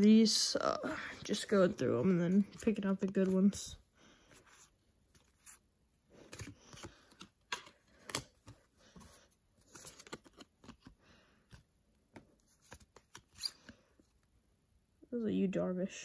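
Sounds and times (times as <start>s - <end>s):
cards flipped through by hand: 4.4s - 11.6s, 12.2s - 13.9s.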